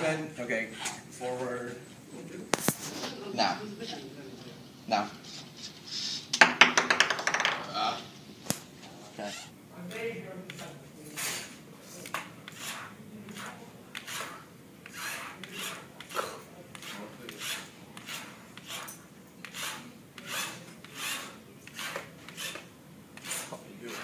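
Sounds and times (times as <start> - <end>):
scratchy rubbing strokes: 10.5 - 24.0.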